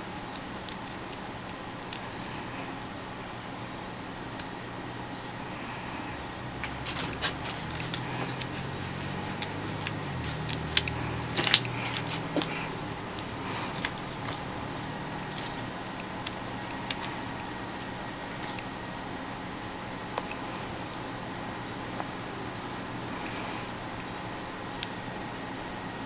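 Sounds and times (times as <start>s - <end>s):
plastic parts clicking and snapping: 0.2s - 2.1s, 9.3s - 14.4s.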